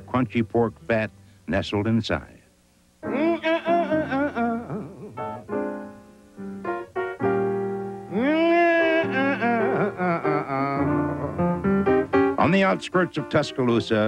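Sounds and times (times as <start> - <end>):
piano background music: 0.0 - 1.2, 3.0 - 14.0.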